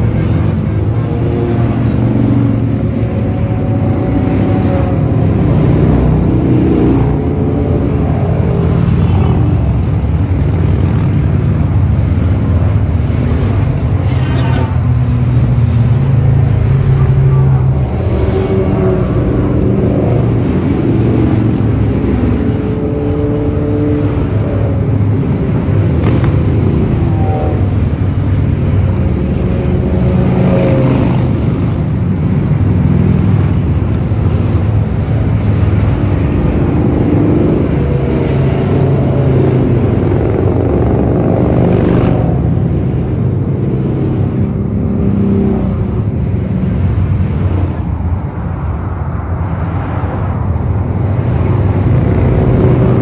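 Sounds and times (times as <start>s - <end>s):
motorcycles riding past: 0.0s - 48.8s, 49.4s - 53.0s.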